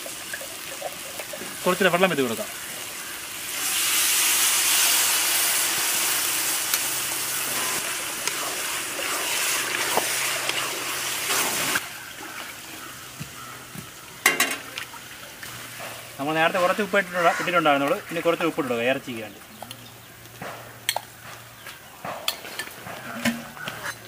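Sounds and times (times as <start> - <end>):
water sizzling in a hot pot: 0.0 - 19.0.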